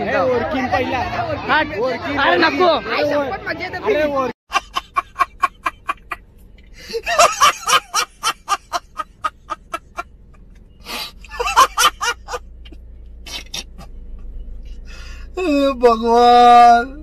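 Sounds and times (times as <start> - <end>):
man laughing hard: 4.5 - 6.2, 6.8 - 10.1, 11.3 - 12.4.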